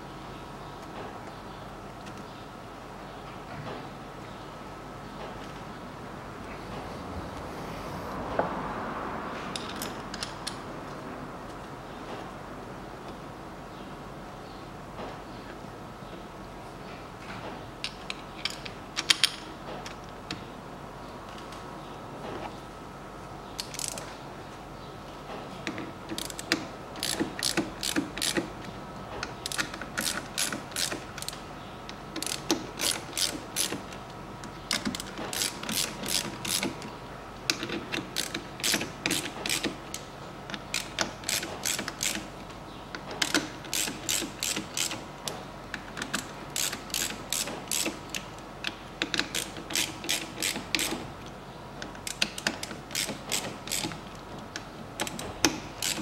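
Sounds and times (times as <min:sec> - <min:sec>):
hand ratchet clicking: 0:23.6 - 0:24.1, 0:26.1 - 0:28.5, 0:29.4 - 0:31.4, 0:32.2 - 0:33.9, 0:34.7 - 0:36.9, 0:37.5 - 0:40.0, 0:40.6 - 0:42.3, 0:43.2 - 0:45.0, 0:46.0 - 0:51.0, 0:52.0 - 0:54.2, 0:55.0 - 0:56.0.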